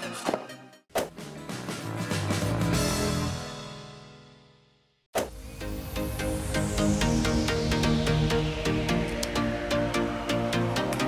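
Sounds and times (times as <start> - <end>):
electronic chord with deep bass: 5.4 - 11.0.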